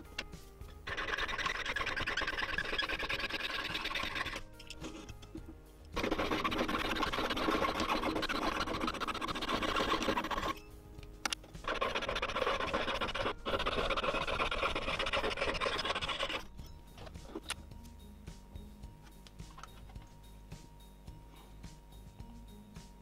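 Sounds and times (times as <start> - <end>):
background music: 0.0 - 23.0
saw rasping through metal: 0.8 - 5.1, 6.0 - 10.7, 11.6 - 16.5.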